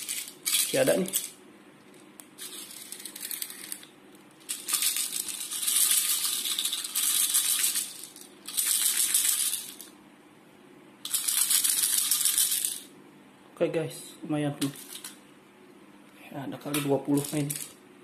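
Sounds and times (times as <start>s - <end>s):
plastic pellets rattling: 0.0s - 1.3s, 2.4s - 9.9s, 11.1s - 12.9s, 17.1s - 17.8s.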